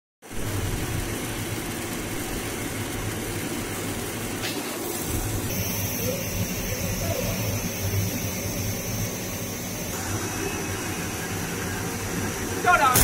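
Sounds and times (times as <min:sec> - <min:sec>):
machine hum: 0:00.2 - 0:13.0
even hiss: 0:04.4 - 0:13.0.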